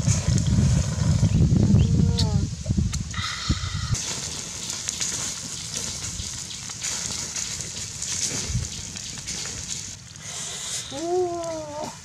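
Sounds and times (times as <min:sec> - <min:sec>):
steady hiss of roasting: 0:00.0 - 0:12.0
wood fire crackling and popping: 0:03.9 - 0:12.0.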